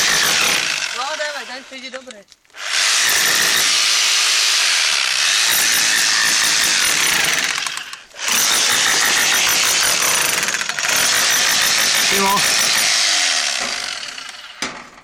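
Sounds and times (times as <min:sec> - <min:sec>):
rotary hammer chiseling stony ground: 0:00.0 - 0:00.9, 0:02.8 - 0:04.1, 0:05.3 - 0:14.4.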